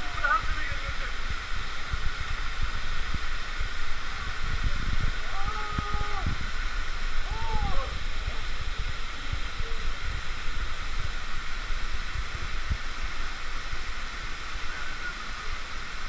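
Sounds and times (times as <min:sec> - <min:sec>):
low rumbles: 0:00.0 - 0:16.0
waterfall rushing: 0:00.0 - 0:16.0.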